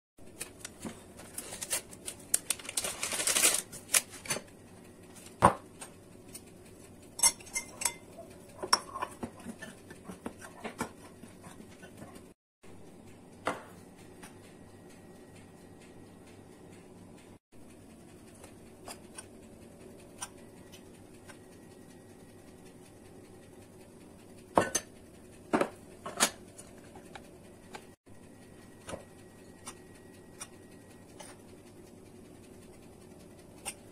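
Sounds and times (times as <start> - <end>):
metal spoon scraping bowls: 7.2 - 12.2.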